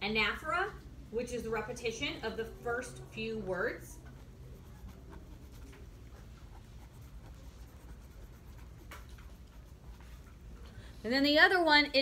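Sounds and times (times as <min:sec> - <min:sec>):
low room hum: 0:00.0 - 0:12.0
pen writing on paper: 0:04.0 - 0:10.2.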